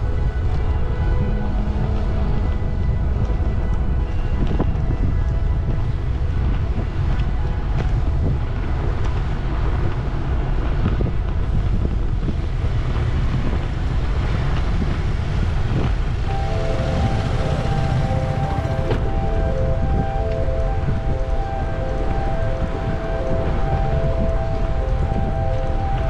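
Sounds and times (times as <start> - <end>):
wind buffeting microphone: 0.0 - 26.0
road traffic: 16.3 - 26.0.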